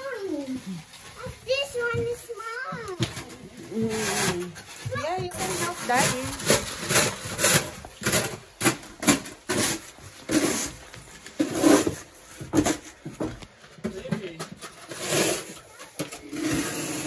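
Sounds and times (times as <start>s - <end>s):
snow shovels scraping: 3.7s - 8.4s, 9.1s - 10.8s, 14.8s - 17.0s.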